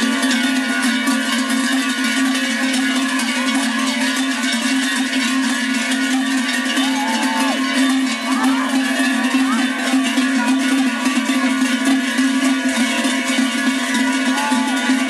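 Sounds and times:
cowbells clanging: 0.0s - 15.0s
people shouting: 6.6s - 10.5s, 13.8s - 15.0s.

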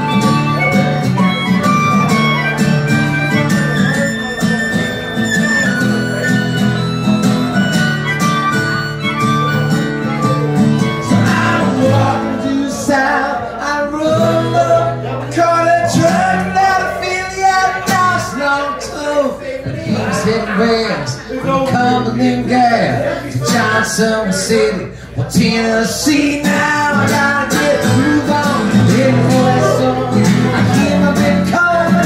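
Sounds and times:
harmonica melody: 0.0s - 18.8s, 26.1s - 32.0s
strummed acoustic guitar: 0.0s - 32.0s.

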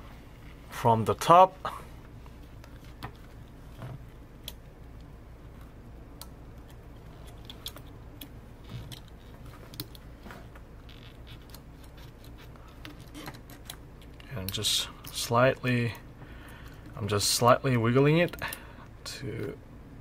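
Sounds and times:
small clicks and light scraping: 2.6s - 15.2s.

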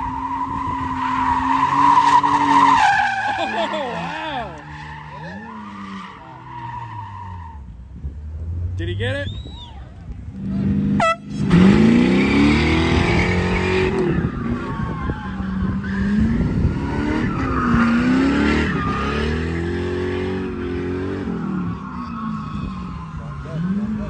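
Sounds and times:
tyres squealing and skidding: 0.0s - 7.8s, 9.0s - 10.0s, 11.0s - 24.0s
car engine revving: 10.4s - 24.0s.

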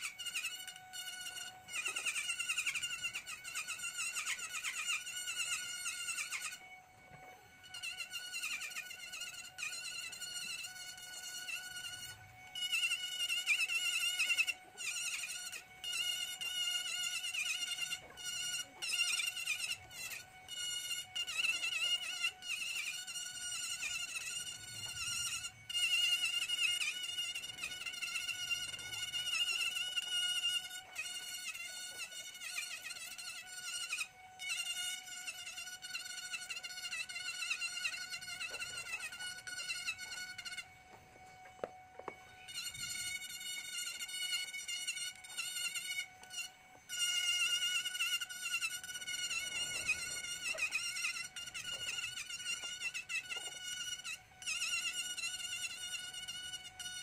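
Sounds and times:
rotary carving tool grinding wood: 0.0s - 57.0s.

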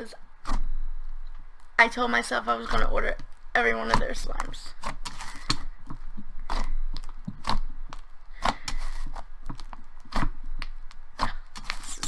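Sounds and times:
slime squishing: 1.2s - 12.0s.

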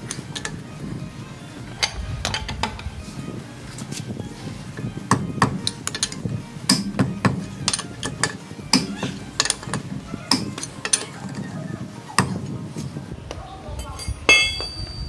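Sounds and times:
lug wrench clicking on nuts: 5.1s - 9.8s.

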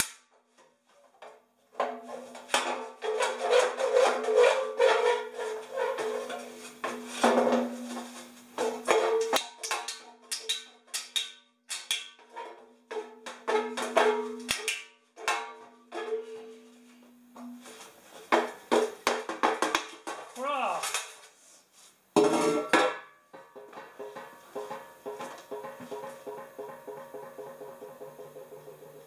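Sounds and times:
metal pipe clanking: 1.8s - 9.8s, 22.2s - 29.0s.

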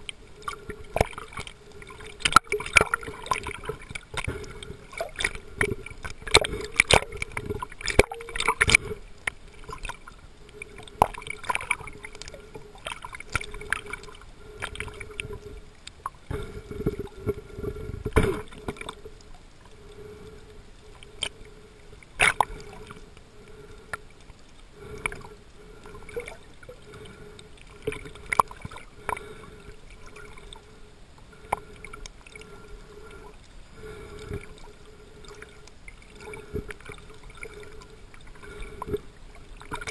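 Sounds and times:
muffled underwater hiss: 0.0s - 39.9s
underwater clicks and pops: 2.2s - 10.0s, 22.2s - 22.6s.

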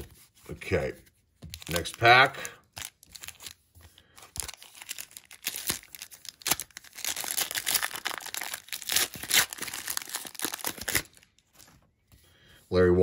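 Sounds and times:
foil wrapper tearing and crinkling: 1.6s - 3.6s, 4.2s - 11.8s.

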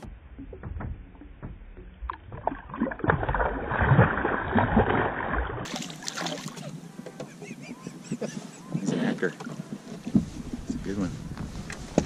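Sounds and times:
open-water noise: 0.0s - 12.0s
fish splashing at water surface: 2.4s - 6.7s.

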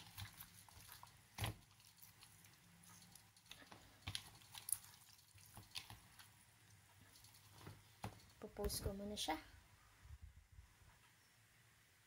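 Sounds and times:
wet squelches of raw meat: 0.0s - 7.7s.

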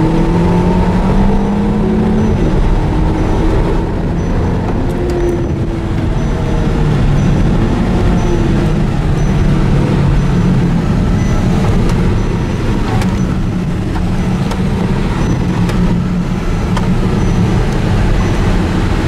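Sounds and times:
car engine and road noise: 0.0s - 19.0s.

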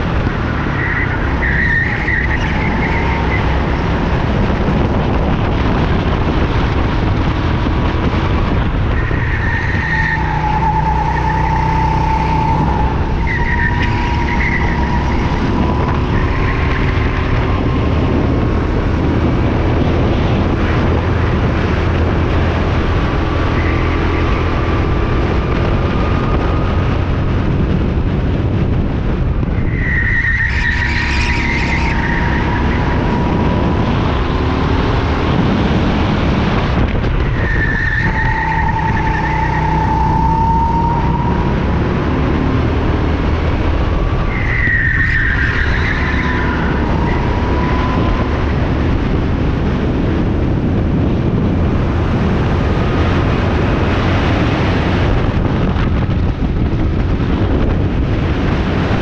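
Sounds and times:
tyre squeal: 0.7s - 3.7s, 9.0s - 17.4s, 29.6s - 33.4s, 37.3s - 41.5s, 44.2s - 48.4s.

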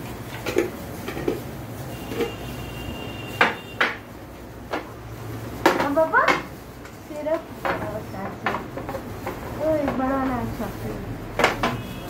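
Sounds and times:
containers and utensils knocking: 0.0s - 2.6s, 3.3s - 4.1s, 5.6s - 6.5s, 7.6s - 10.4s, 11.3s - 12.0s.

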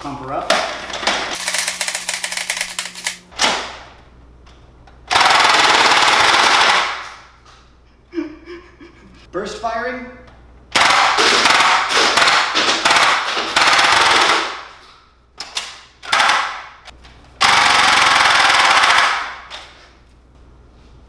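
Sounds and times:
dart blaster firing full-auto: 10.8s - 14.6s.

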